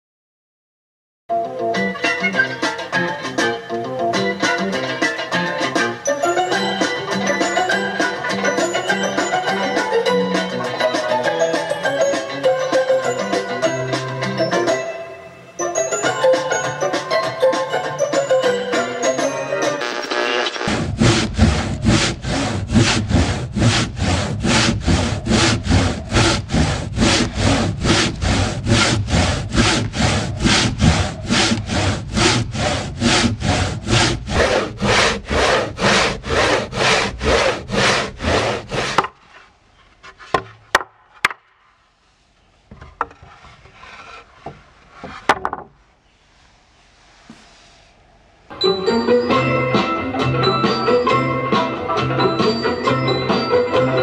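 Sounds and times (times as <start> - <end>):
handsaw cutting wood: 19.8 - 39.2.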